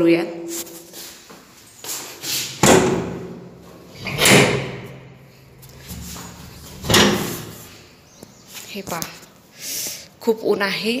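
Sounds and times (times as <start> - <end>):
metal door knocks and clatters: 2.6 - 5.0, 6.7 - 7.6
sliding door bolts drawn back: 3.9 - 5.0, 5.8 - 7.6.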